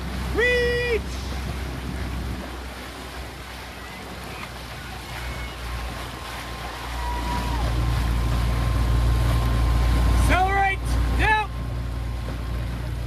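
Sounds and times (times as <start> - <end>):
low engine hum: 0.0 - 13.0
water rushing past boat: 0.0 - 13.0
wind on microphone: 1.0 - 2.8.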